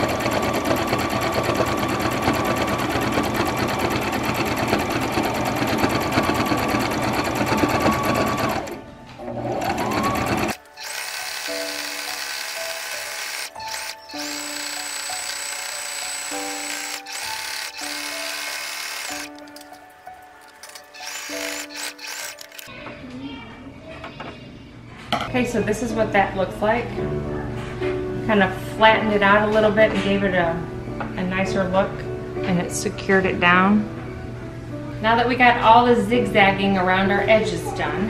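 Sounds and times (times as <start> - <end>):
electric sewing machine running: 0.0 - 19.6, 20.4 - 22.7
background music with held notes: 0.0 - 38.0.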